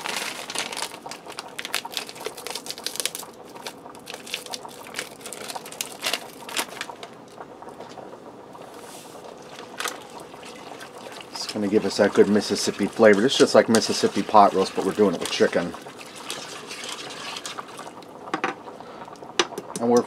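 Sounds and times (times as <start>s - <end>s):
foil packet crinkling: 0.0s - 7.4s, 8.7s - 18.0s.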